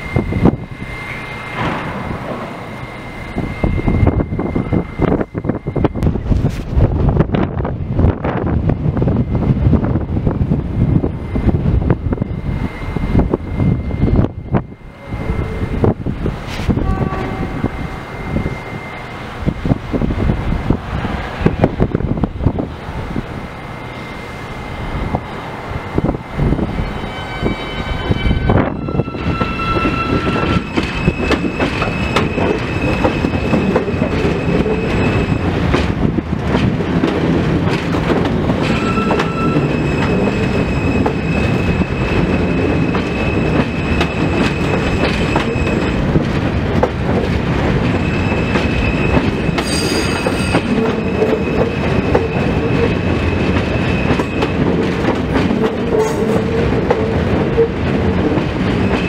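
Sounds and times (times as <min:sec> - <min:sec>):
high whine: 0:00.0 - 0:06.9
subway train rumble: 0:00.0 - 0:59.0.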